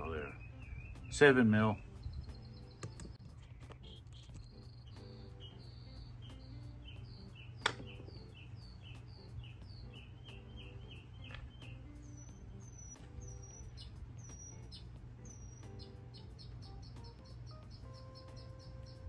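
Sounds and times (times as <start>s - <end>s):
songbirds chirping: 0.0s - 19.0s
sharp click: 2.8s - 3.2s, 7.6s - 8.0s.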